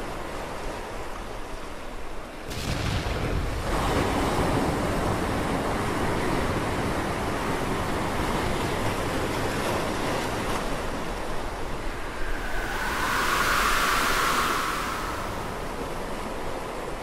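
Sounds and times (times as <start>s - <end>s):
ocean waves washing: 8.7s - 17.0s.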